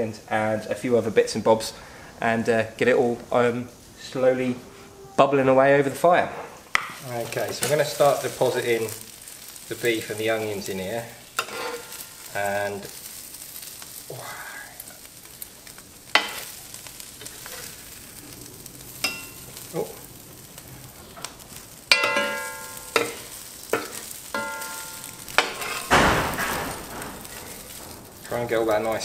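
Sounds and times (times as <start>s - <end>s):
meat sizzling: 0.0s - 29.0s
metal tongs knocking on pot: 21.9s - 26.5s.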